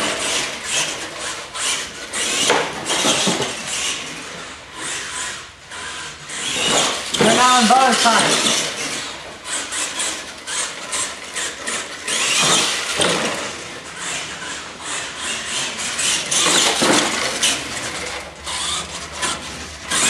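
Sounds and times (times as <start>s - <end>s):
tires scrubbing on concrete: 0.0s - 20.0s
toy truck motor revving: 0.0s - 20.0s.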